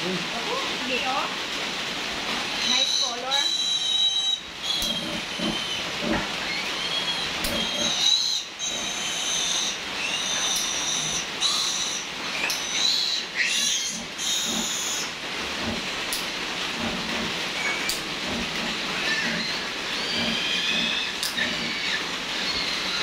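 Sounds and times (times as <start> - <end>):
piglet squealing: 2.6 - 15.1, 18.9 - 23.0.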